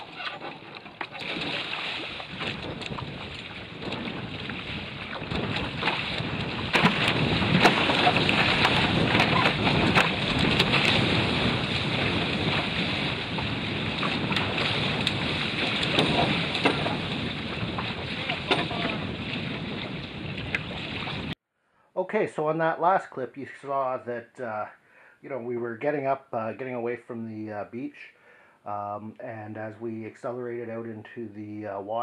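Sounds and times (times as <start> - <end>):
water rushing and splashing: 0.0 - 21.4
wind buffeting microphone: 0.0 - 21.4.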